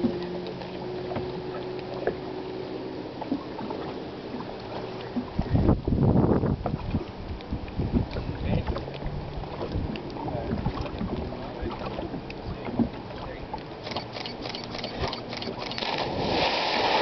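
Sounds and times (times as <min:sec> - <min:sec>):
water lapping: 0:00.0 - 0:17.0
big splash into lake: 0:15.5 - 0:17.0.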